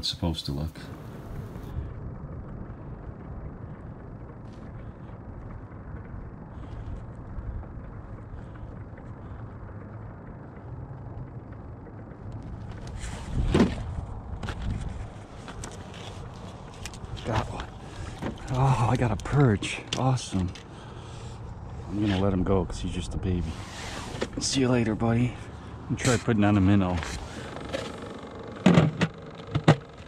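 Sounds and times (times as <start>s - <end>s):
wind rumble on microphone: 0.9s - 19.7s, 21.0s - 25.9s.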